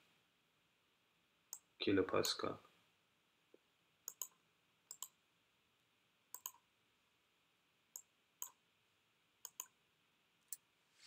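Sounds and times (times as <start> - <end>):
computer mouse clicks: 4.1 - 5.2, 6.3 - 6.6, 8.0 - 8.6, 9.4 - 9.8.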